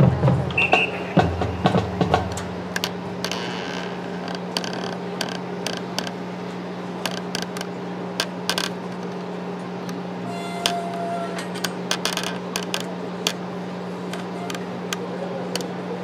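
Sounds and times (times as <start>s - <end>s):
steady low hum: 0.0s - 16.0s
sharp clicks and knocks: 1.7s - 6.2s, 7.0s - 9.3s, 11.4s - 13.4s.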